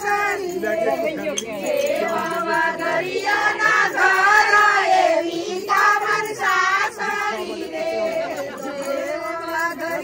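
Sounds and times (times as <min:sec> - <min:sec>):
voices singing devotional song: 0:00.0 - 0:10.0.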